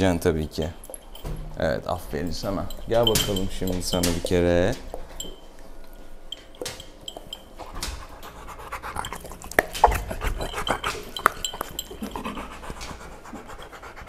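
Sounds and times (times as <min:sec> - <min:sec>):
sharp clicks and knocks: 0:00.6 - 0:05.4
dog panting and snuffling: 0:07.1 - 0:14.0.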